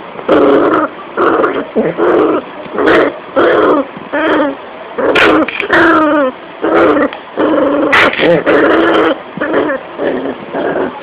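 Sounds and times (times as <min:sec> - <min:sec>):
dog growling and yipping: 0:00.3 - 0:11.0.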